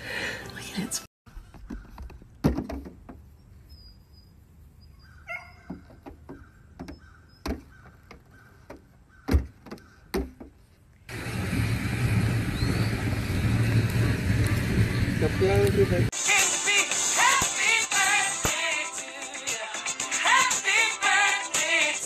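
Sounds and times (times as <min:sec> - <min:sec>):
hooves knocking on metal hood: 0:05.6 - 0:10.6
wind noise: 0:11.1 - 0:16.1.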